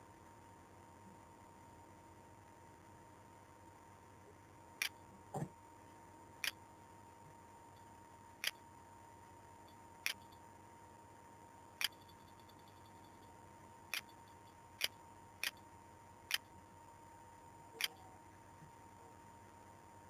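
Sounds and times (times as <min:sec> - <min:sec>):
faint high hum and hiss: 0:00.0 - 0:20.0.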